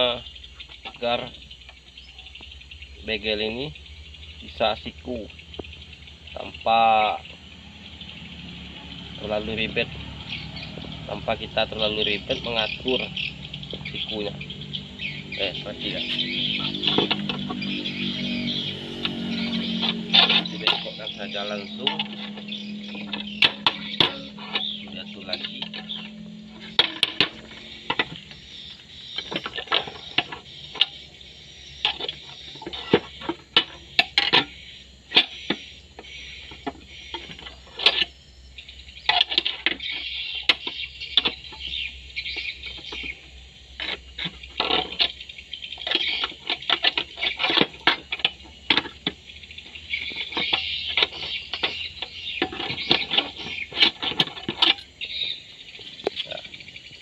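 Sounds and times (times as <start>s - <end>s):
steel bar clinking and scraping: 15.6s - 28.4s.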